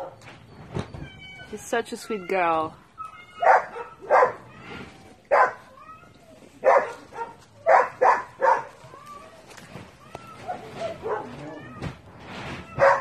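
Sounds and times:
dog barking: 0:03.4 - 0:04.4, 0:05.3 - 0:05.6, 0:06.6 - 0:08.8, 0:10.5 - 0:11.4, 0:12.8 - 0:13.0.

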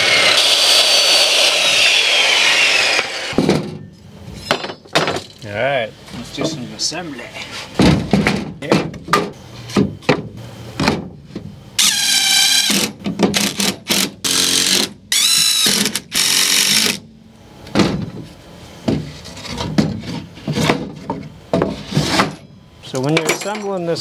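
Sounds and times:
cordless drill driving screws: 0:00.0 - 0:03.4, 0:11.8 - 0:17.0.

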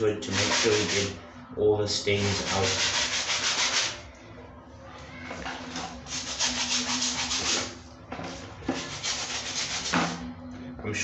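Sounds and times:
scrub brush scrubbing rubber sole: 0:00.3 - 0:01.1, 0:06.1 - 0:07.7.

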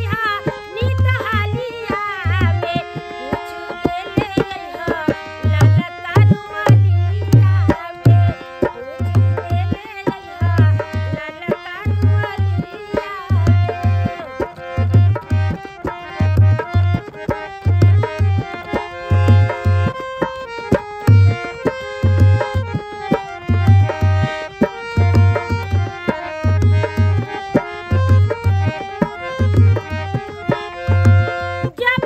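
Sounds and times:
person singing: 0:00.0 - 0:12.3
harmonium held notes: 0:00.0 - 0:32.0.

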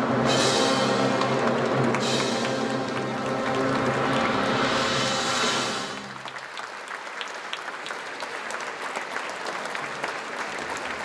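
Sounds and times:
audience applauding: 0:00.8 - 0:11.0.

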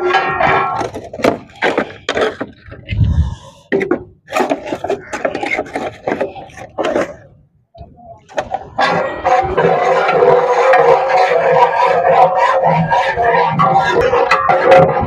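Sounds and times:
wooden clatter: 0:00.0 - 0:07.2.

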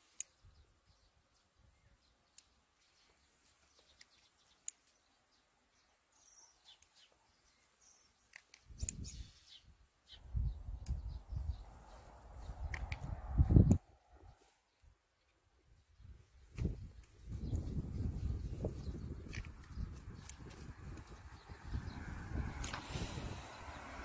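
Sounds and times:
small birds chirping: 0:00.0 - 0:24.0
light clicks: 0:03.7 - 0:05.0, 0:12.6 - 0:13.8, 0:19.2 - 0:21.1.

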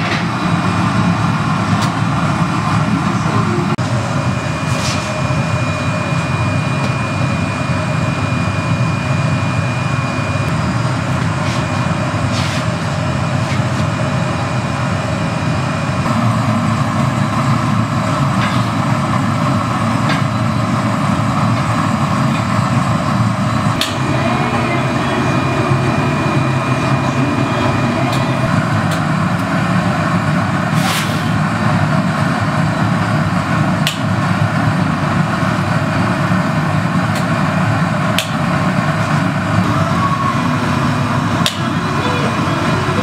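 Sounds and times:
gas furnace rushing: 0:00.0 - 0:08.0, 0:15.7 - 0:43.0.

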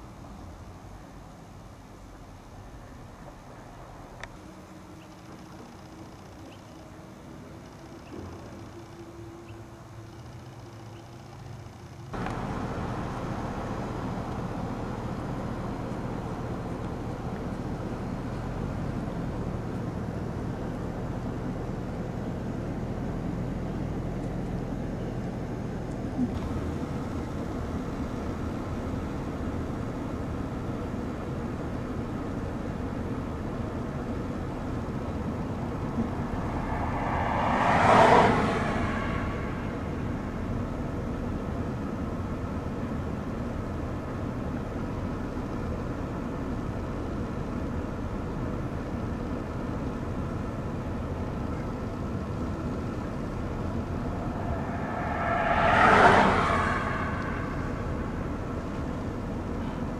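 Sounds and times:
vehicles passing: 0:00.0 - 0:59.9
steady low rumble: 0:34.6 - 0:41.6, 0:51.9 - 0:59.7.

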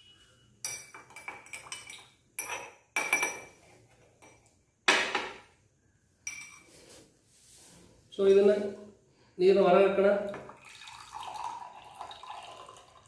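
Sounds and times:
metal spoon clinking in a glass: 0:00.0 - 0:03.6, 0:06.2 - 0:06.7.

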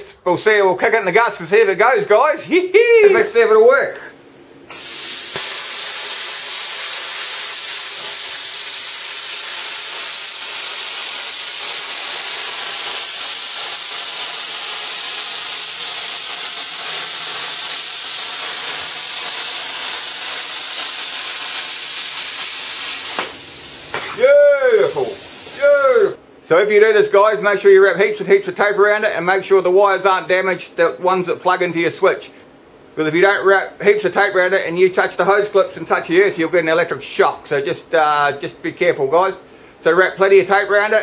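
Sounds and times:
plasma cutter hissing: 0:03.1 - 0:04.0, 0:04.7 - 0:26.2.

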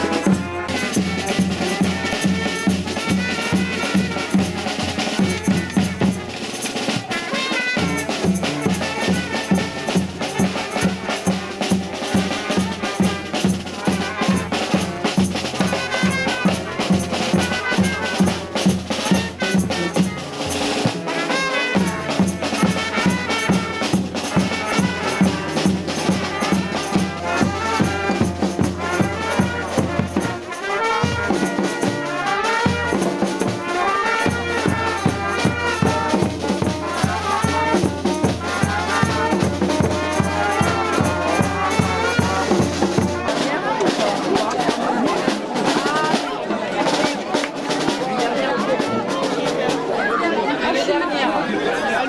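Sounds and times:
bass drum and snare beat: 0:00.0 - 0:43.6
trumpets: 0:00.0 - 0:45.1.

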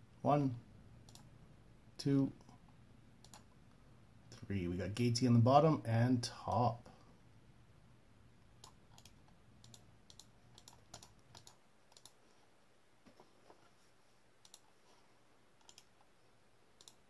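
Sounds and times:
mouse and keyboard clicks: 0:15.6 - 0:16.0.

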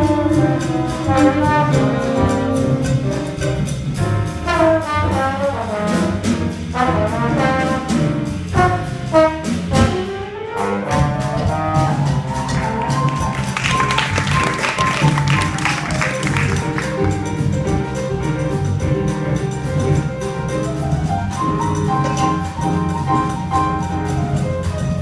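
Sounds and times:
trombone playing: 0:00.0 - 0:03.7, 0:04.3 - 0:17.4
drum kit strokes: 0:00.0 - 0:25.0.

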